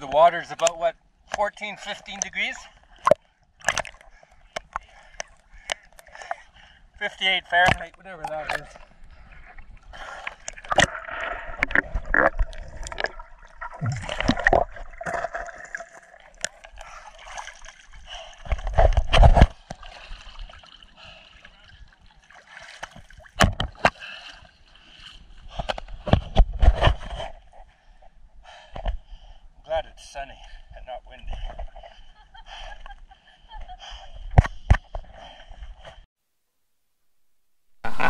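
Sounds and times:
water sloshing and gurgling: 0:01.1 - 0:29.5, 0:30.4 - 0:36.1.

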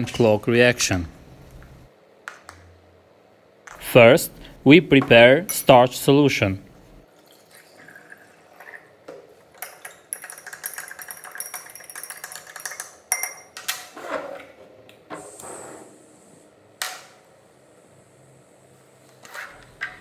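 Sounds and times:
metal spatula clinking on glass: 0:09.6 - 0:13.6.

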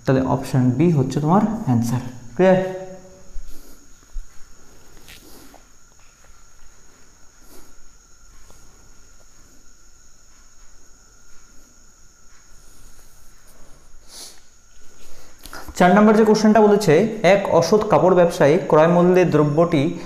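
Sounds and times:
faint high-pitched whine: 0:00.0 - 0:20.0
soft knocks and shuffles: 0:02.1 - 0:15.8.

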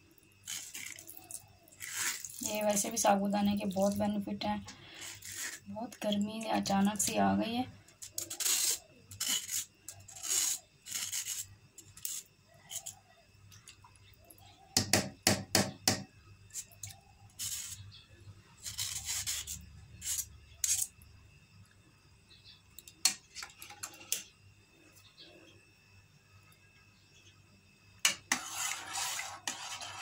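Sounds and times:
metal spoon scraping mesh strainer: 0:04.9 - 0:05.6, 0:18.6 - 0:20.9, 0:28.1 - 0:30.0.

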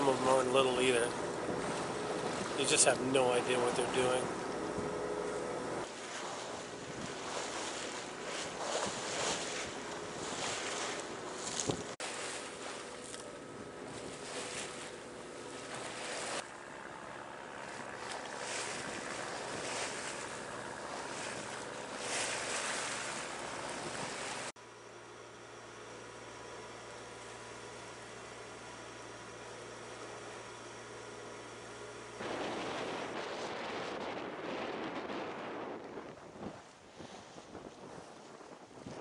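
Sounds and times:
water washing along a hull: 0:00.0 - 0:24.6, 0:32.2 - 0:39.0
wind on microphone: 0:01.4 - 0:02.6, 0:05.7 - 0:12.0, 0:17.9 - 0:24.5, 0:32.2 - 0:39.0.

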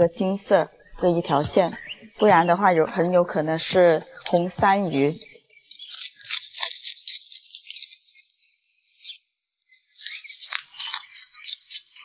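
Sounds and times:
fish scaler rasping: 0:05.7 - 0:08.2, 0:10.0 - 0:12.0.

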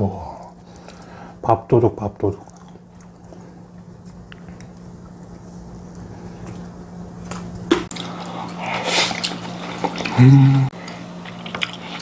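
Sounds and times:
wet chewing of rice: 0:02.4 - 0:12.0
person humming mm: 0:10.0 - 0:10.8.

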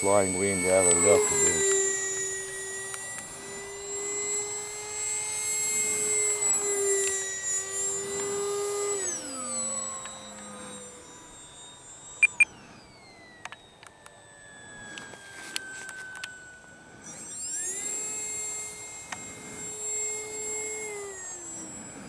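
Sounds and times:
electric ducted fan whining: 0:00.0 - 0:22.0
short beeps: 0:12.2 - 0:12.5.

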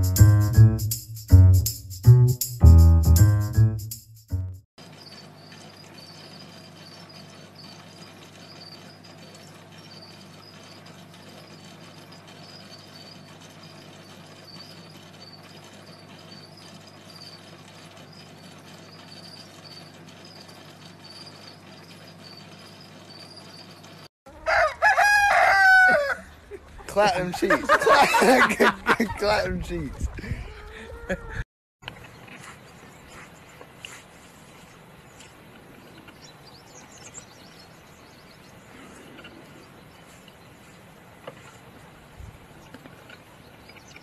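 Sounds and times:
rooster crowing: 0:24.3 - 0:26.4.

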